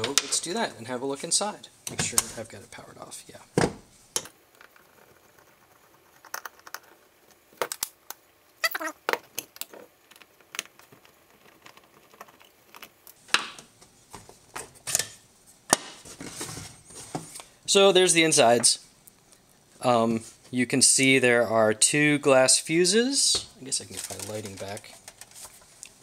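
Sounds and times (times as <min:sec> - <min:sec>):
plastic handling: 0:23.3 - 0:26.0.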